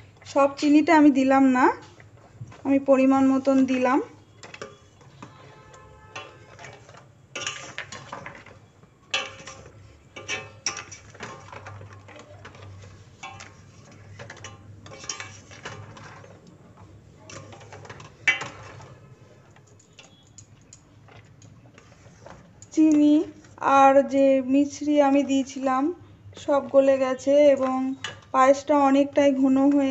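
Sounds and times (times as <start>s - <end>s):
ladle scraping metal pot: 3.7s - 23.6s
ladle clinking on metal: 6.2s - 8.5s, 9.1s - 16.3s, 17.2s - 21.6s.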